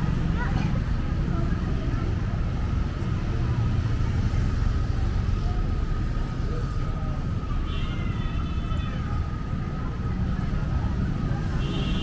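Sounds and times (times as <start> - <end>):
street traffic passing: 0.0 - 12.0.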